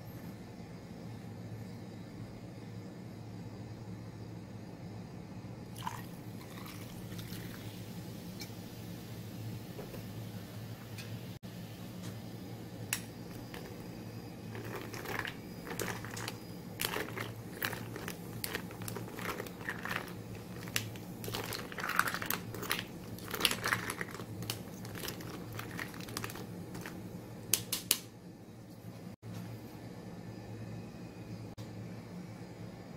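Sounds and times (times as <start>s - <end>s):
steady low hum: 0.0s - 32.9s
spoon stirring ice in glass: 13.3s - 13.8s, 14.5s - 27.0s.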